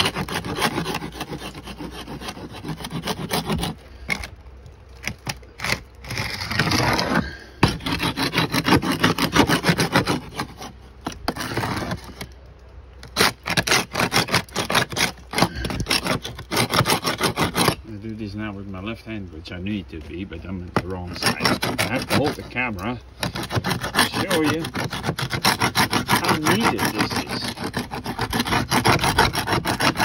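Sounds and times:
paint scraper rasping on wood siding: 0.0s - 12.4s, 13.0s - 18.2s, 19.9s - 30.0s.

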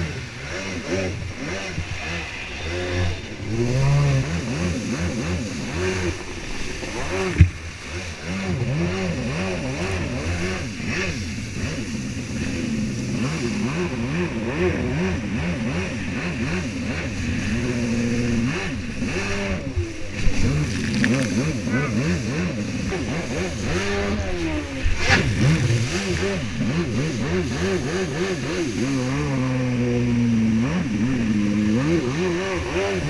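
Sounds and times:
jet ski engine revving: 0.0s - 33.0s
rush of water spray: 0.0s - 33.0s.

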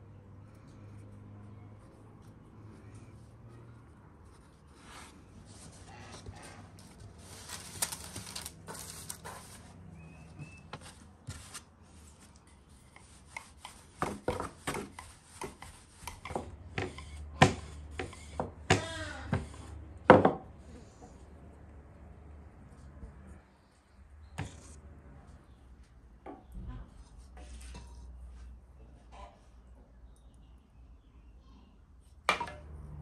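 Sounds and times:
parchment paper rustling: 1.6s - 16.4s
rolling pin on wooden board: 12.9s - 20.4s.

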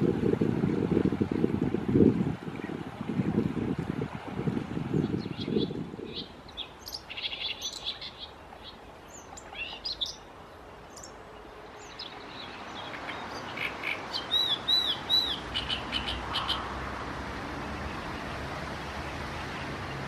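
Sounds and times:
reed warbler singing: 4.8s - 16.9s
steady background hiss: 5.9s - 20.0s.

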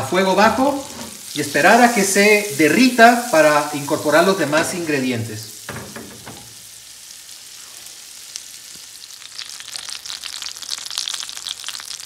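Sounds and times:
butter sizzling in a frying pan: 0.1s - 12.0s
crackling and popping butter: 8.3s - 12.0s.

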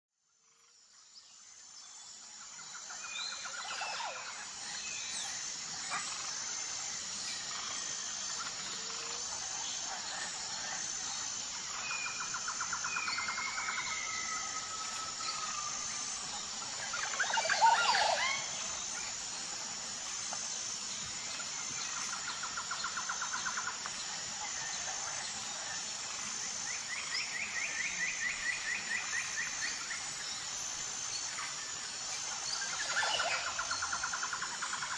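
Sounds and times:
birds trilling and calling: 3.1s - 19.8s.

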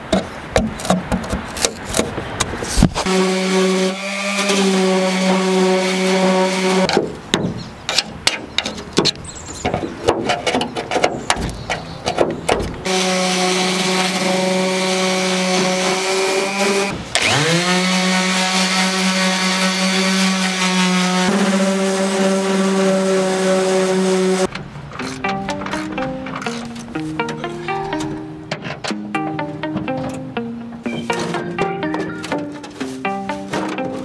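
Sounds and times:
electric orbital sander running: 3.0s - 6.9s, 12.9s - 24.5s.

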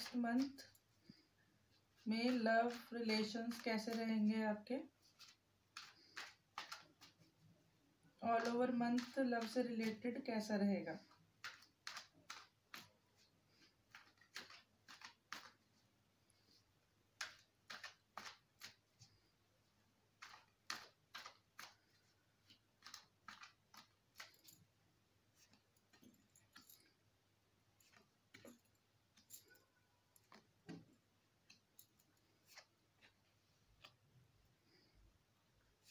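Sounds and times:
cards being shuffled: 0.0s - 0.7s, 2.0s - 4.2s, 5.0s - 7.4s, 8.3s - 10.1s, 11.1s - 15.8s, 17.1s - 19.2s, 20.1s - 24.6s, 25.3s - 26.9s, 31.4s - 34.0s.

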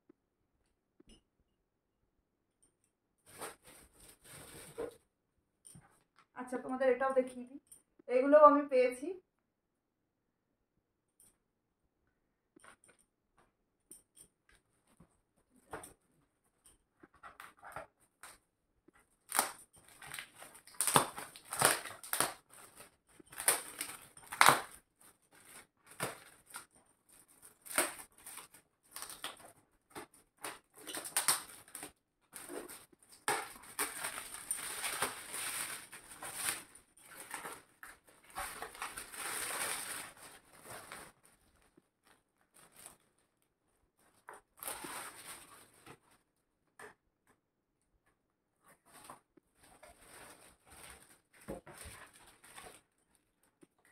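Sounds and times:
plastic gift wrap crinkling: 3.2s - 5.0s, 19.0s - 46.2s, 48.7s - 53.9s.

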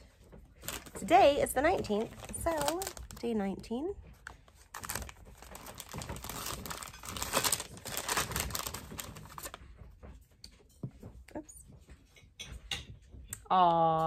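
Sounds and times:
paper bag tearing and crinkling: 2.0s - 3.3s, 4.7s - 9.6s.

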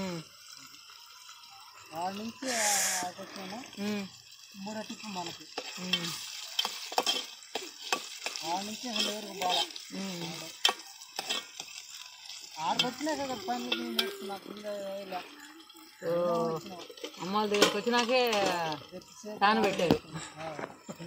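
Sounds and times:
vegetables sizzling in a pot: 0.0s - 21.0s
ladle scraping metal pot: 5.5s - 11.8s.

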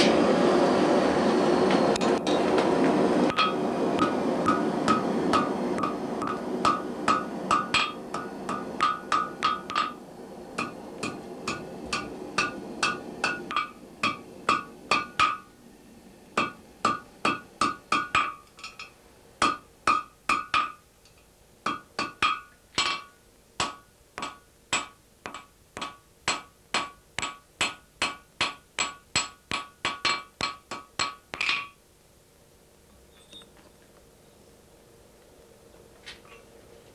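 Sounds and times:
hammer striking iron on anvil: 2.0s - 2.7s, 3.3s - 10.0s, 10.6s - 15.5s, 16.4s - 20.8s, 21.6s - 31.8s.

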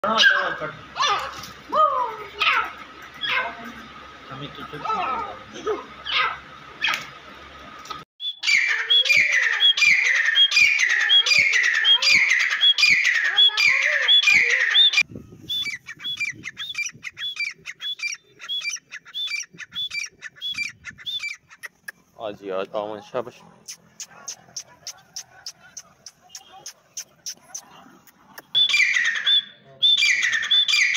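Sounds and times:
bird ringing calls: 8.2s - 22.1s, 28.5s - 30.9s.

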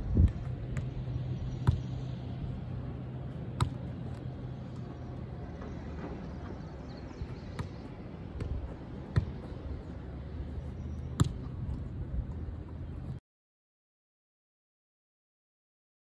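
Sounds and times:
steady low hum: 0.0s - 13.2s
ball thuds on boot and turf: 3.6s - 3.8s, 8.4s - 9.5s, 11.2s - 11.4s.

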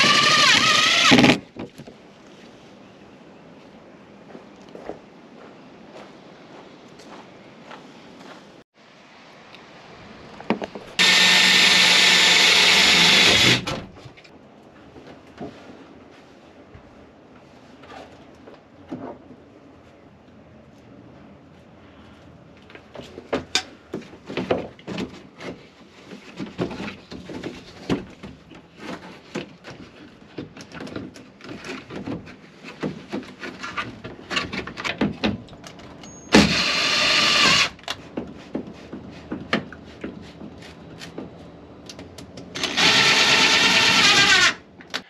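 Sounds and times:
cordless drill driving screws: 0.0s - 1.4s, 11.0s - 13.7s, 36.3s - 37.8s, 42.6s - 44.6s.

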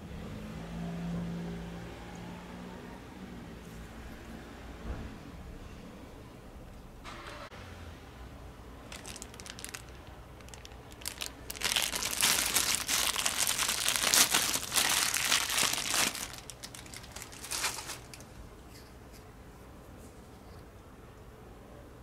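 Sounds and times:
plastic bag crinkling: 8.8s - 18.8s.

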